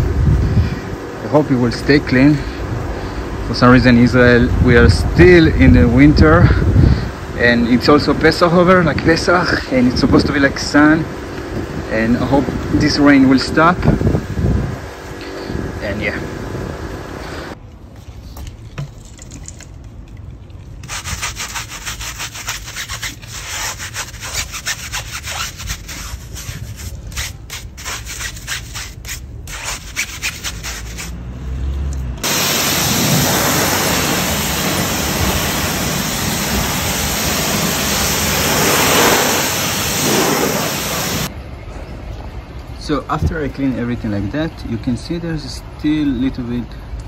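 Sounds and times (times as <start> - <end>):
brush scrubbing a wheel: 20.8 - 31.2, 32.2 - 41.3
pressure washer jet hissing: 32.2 - 41.3.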